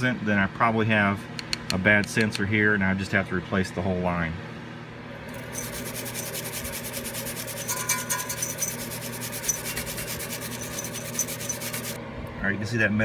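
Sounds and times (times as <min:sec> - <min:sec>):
hand brush scrubbing rust: 0:05.3 - 0:12.0.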